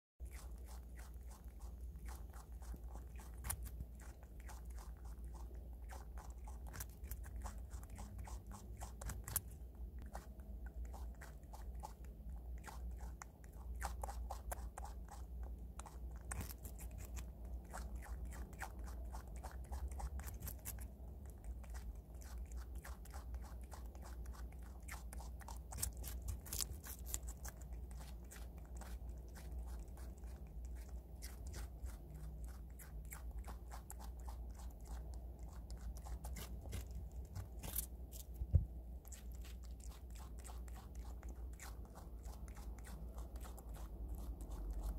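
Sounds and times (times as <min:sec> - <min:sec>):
animal crunching radish: 0:00.2 - 0:44.9
steady low hum: 0:00.2 - 0:44.9.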